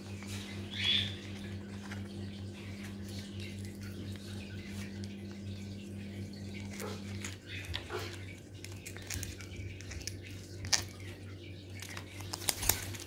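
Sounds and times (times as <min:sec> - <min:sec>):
steady low hum: 0:00.0 - 0:13.0
parrot beak gnawing bark: 0:06.5 - 0:11.1, 0:11.7 - 0:13.0.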